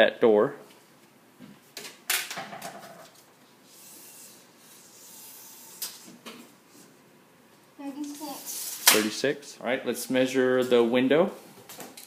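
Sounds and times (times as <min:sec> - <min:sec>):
soft rubbing hiss: 0:03.4 - 0:11.7.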